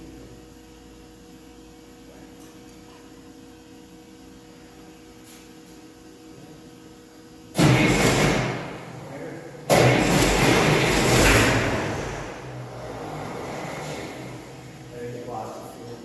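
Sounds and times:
tractor engine firing: 7.6 - 9.0, 9.7 - 12.6.

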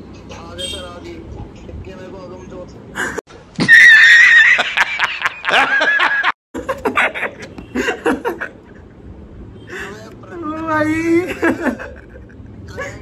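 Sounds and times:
hearty laughter: 4.2 - 9.0, 11.2 - 13.0.

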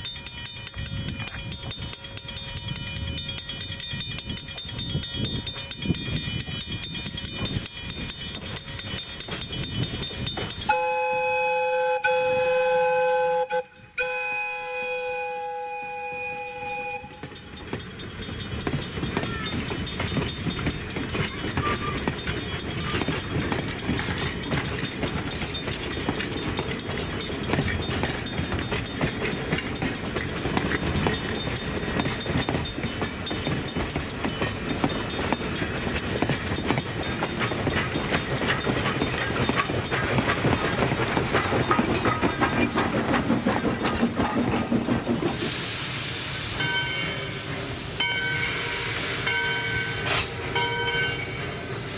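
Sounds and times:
train wheels clattering over rail joints: 0.0 - 10.7, 17.0 - 45.8
sharp hiss: 45.3 - 50.4.

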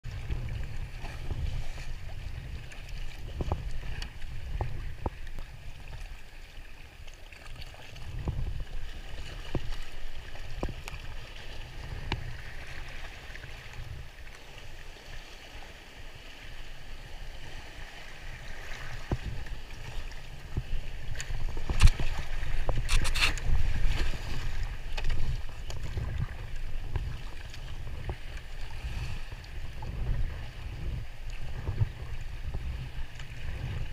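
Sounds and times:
water splashing against hull: 0.0 - 33.9
wind rumble on microphone: 0.0 - 33.9
kayak paddle strokes: 0.1 - 33.9.

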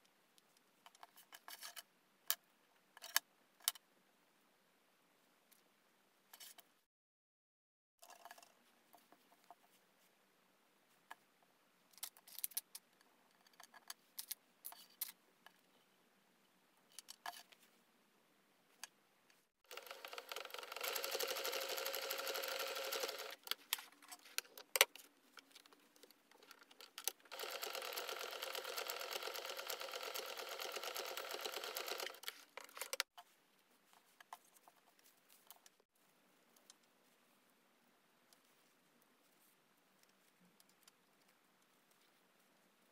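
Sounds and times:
sewing machine stitching: 19.6 - 23.5, 27.0 - 33.0.

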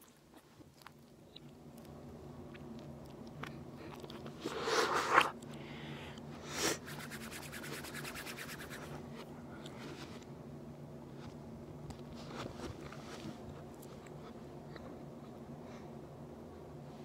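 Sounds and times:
palms rubbing together: 6.8 - 9.0.

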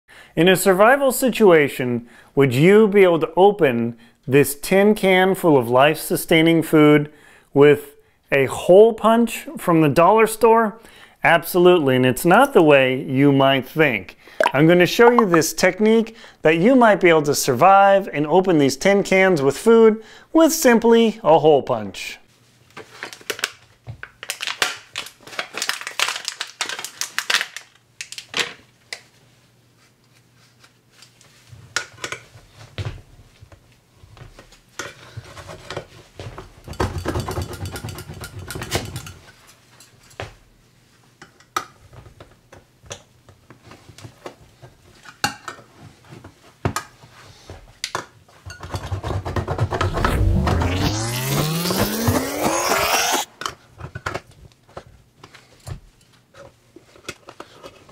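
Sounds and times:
plastic packaging crinkling: 24.2 - 28.4.

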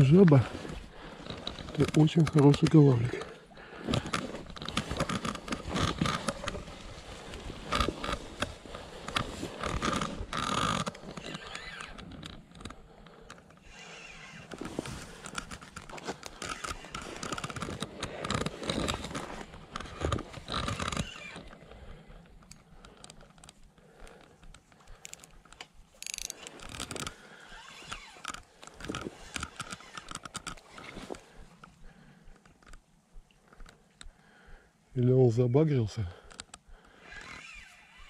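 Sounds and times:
rustling and handling noise: 0.0 - 34.2
fishing reel clicking: 7.7 - 31.7.

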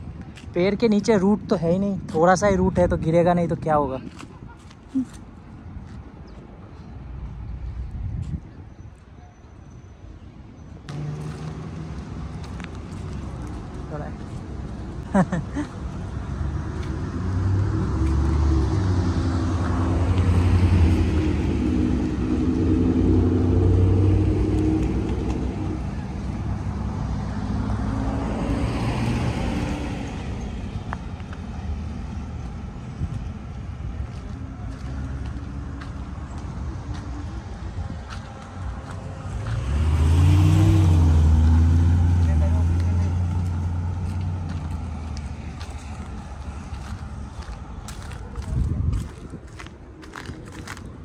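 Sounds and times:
cars passing: 10.0 - 51.0.

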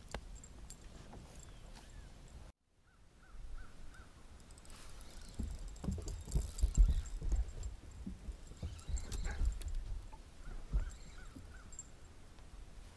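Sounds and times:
footsteps on boat deck: 5.3 - 11.6
bird chirps: 10.4 - 11.9.

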